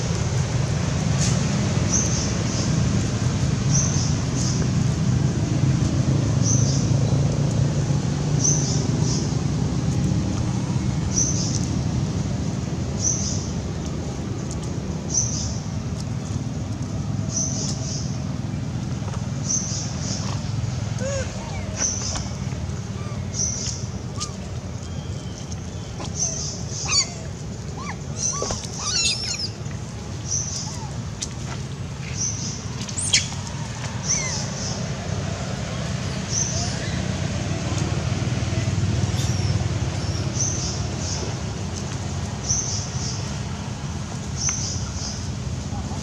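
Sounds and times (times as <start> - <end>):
infant monkey squeaks and chirps: 21.0 - 25.0, 25.8 - 29.6, 33.0 - 33.3, 34.1 - 34.4
high-pitched animal chirps: 27.8 - 29.5.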